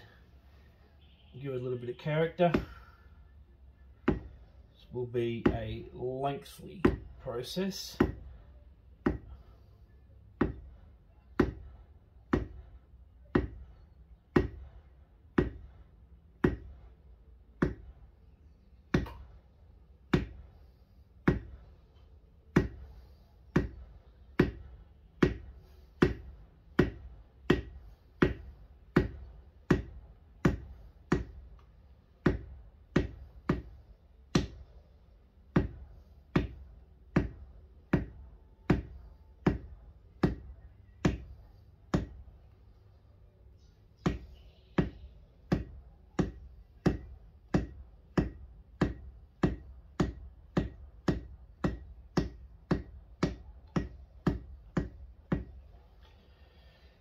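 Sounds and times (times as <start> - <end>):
mallet knocking leather stamp: 4.0 - 4.4, 6.8 - 7.2, 8.0 - 8.3, 9.0 - 9.4, 10.4 - 10.7, 11.3 - 11.7, 12.3 - 13.7, 14.3 - 14.7, 15.3 - 15.8, 16.4 - 16.8, 17.6 - 17.9, 20.1 - 20.4, 21.2 - 21.6, 22.5 - 22.9, 23.5 - 31.4, 32.2 - 34.7, 35.5 - 42.2, 44.0 - 55.6.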